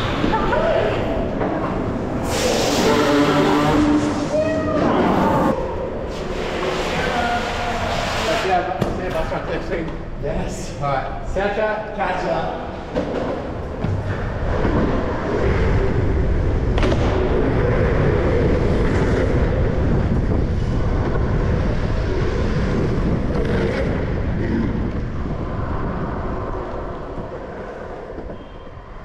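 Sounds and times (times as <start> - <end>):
skateboard wheels rolling on asphalt: 12.7 - 29.0
wind rushing on microphone: 13.8 - 29.0.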